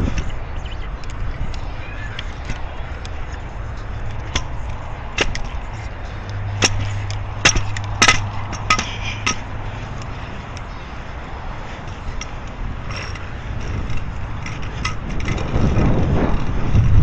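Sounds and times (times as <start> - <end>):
low rolling rumble: 0.0 - 17.0
steady low hum: 0.0 - 17.0
scooter clacking down concrete steps: 4.0 - 5.6, 6.2 - 10.0.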